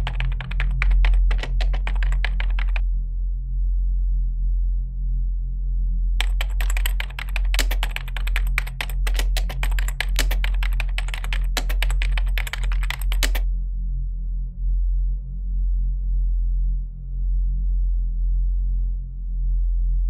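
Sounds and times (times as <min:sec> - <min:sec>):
rapid keyboard typing: 0:00.0 - 0:02.8, 0:06.2 - 0:13.5.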